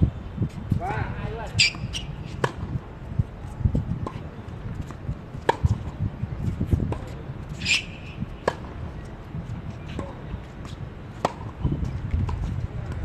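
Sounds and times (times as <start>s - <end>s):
brief high squeak: 1.6s - 2.1s, 7.6s - 8.2s.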